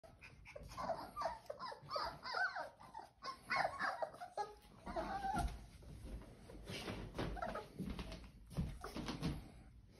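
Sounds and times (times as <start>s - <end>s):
puppies whimpering and squealing: 0.0s - 6.1s, 7.0s - 7.9s.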